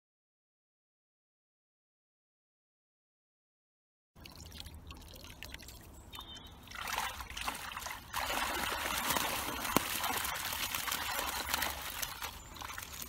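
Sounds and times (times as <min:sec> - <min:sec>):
water pouring off a net: 0:06.7 - 0:13.0.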